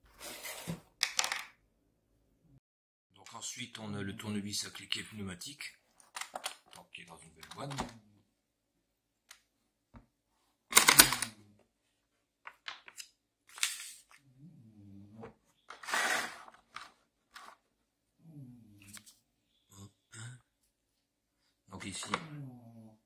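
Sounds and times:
plastic scraping: 15.2 - 17.7.

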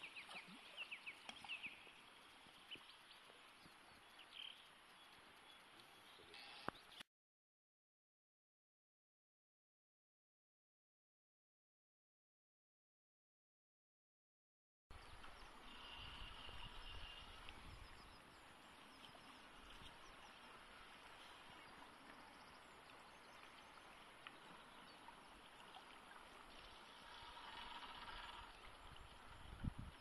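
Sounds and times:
flowing river water: 0.0 - 7.0, 15.0 - 30.0.

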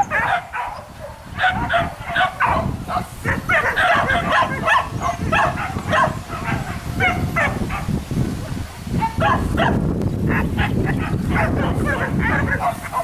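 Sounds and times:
dogs barking: 0.0 - 13.0.

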